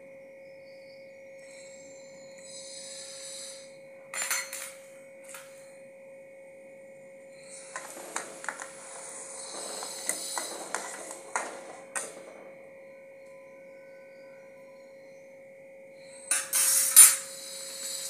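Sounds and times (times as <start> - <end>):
steady high hum: 0.0 - 18.0
metal ladle scraping in a wok: 16.3 - 18.0.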